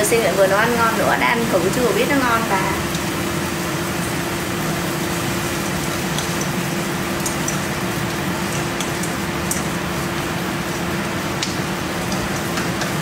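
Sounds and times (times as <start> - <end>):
extractor fan humming: 0.0 - 13.0
utensil clicking in a pot: 5.8 - 9.7, 11.4 - 13.0.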